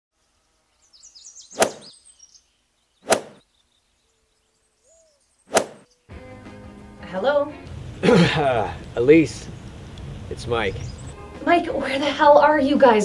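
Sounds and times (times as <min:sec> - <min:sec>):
birds chirping: 0:00.2 - 0:06.2, 0:08.6 - 0:11.6
golf club striking ball: 0:01.6 - 0:01.9, 0:03.1 - 0:03.4, 0:05.5 - 0:05.8.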